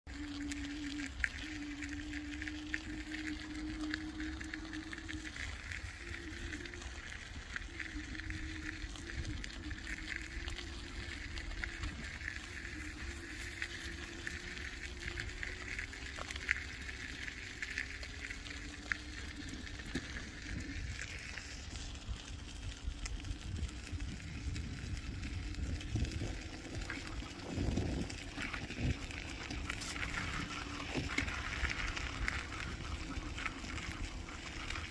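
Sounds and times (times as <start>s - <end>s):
rumble of tyres and wind: 0.0s - 34.9s
electric bike motor whine: 0.1s - 34.9s.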